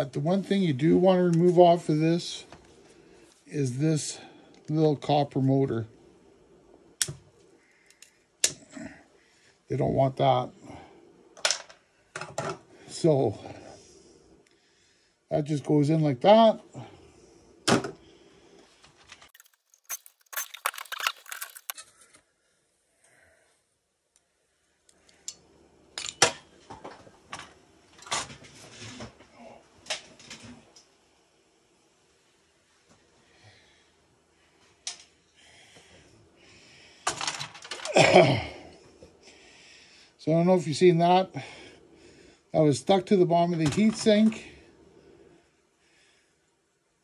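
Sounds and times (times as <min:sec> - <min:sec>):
metal and plastic parts rattling: 0:19.0 - 0:21.9, 0:37.0 - 0:37.9.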